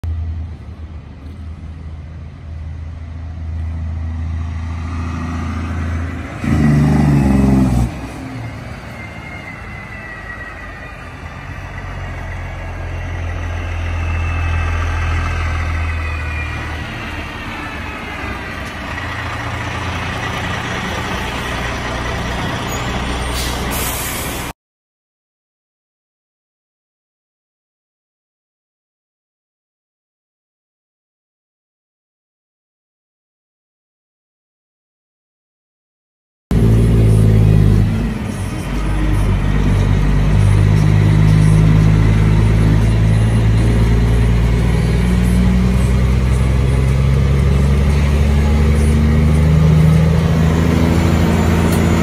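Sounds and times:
diesel truck engine running: 0:00.1 - 0:24.5, 0:36.5 - 0:52.0.

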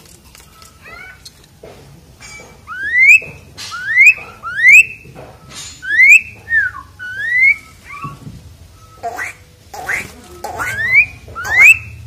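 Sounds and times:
starling singing whistles: 0:02.7 - 0:12.0.

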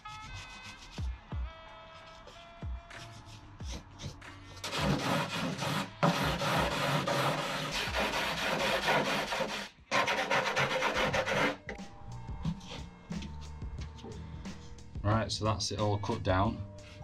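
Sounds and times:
faint background music: 0:00.0 - 0:17.0
sanding rasping scrape: 0:04.6 - 0:11.6.

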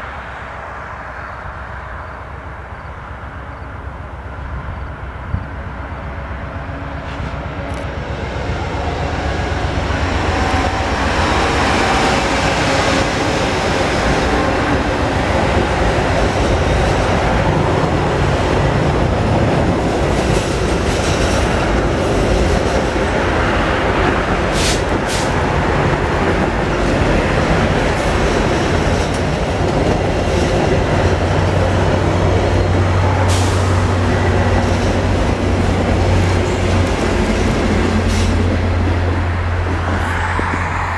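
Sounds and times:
train wheels clattering on bridge: 0:10.1 - 0:40.8.

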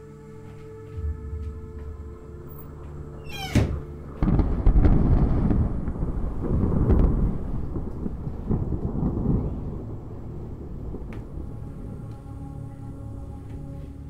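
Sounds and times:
rolling thunder rumble: 0:03.6 - 0:12.1.

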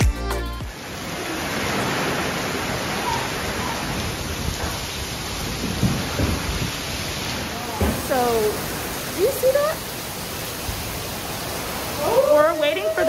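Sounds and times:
music: 0:00.0 - 0:00.8
heavy rain pouring: 0:00.5 - 0:13.0.

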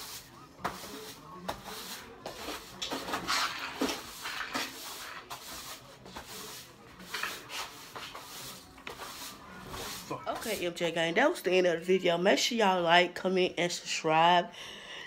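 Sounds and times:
cleaning tool swishing across floor: 0:00.0 - 0:10.6.

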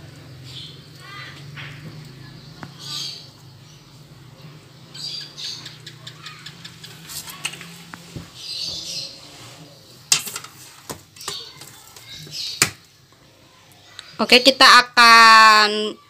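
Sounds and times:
metal spoon scraping baking tray: 0:06.9 - 0:11.8.

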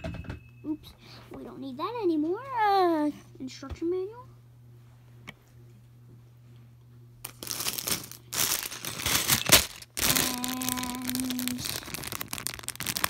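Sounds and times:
steady hum: 0:00.0 - 0:13.0
plastic bag crinkling: 0:07.2 - 0:13.0.

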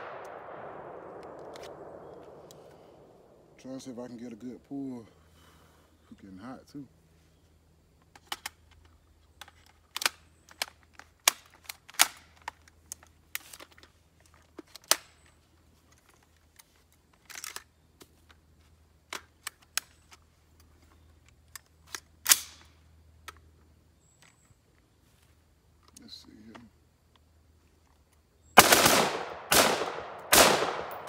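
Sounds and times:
metallic clicks of rifle action: 0:00.0 - 0:02.9, 0:08.0 - 0:18.4, 0:19.0 - 0:23.5
rifle shots: 0:00.0 - 0:03.4, 0:28.6 - 0:31.0.

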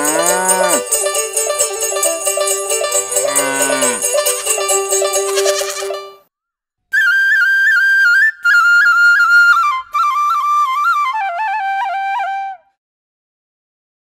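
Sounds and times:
solo flute melody: 0:06.9 - 0:12.8.

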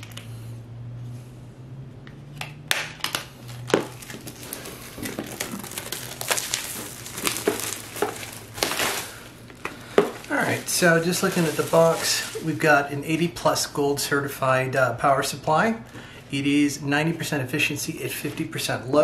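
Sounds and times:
plastic shrink-wrap crinkling: 0:03.4 - 0:12.9.

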